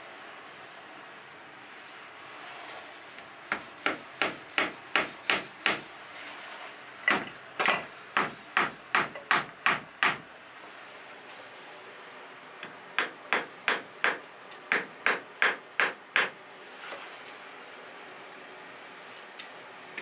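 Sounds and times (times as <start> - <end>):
hatchet knocking on wooden frame: 3.5 - 5.8, 7.1 - 10.2, 13.0 - 16.4.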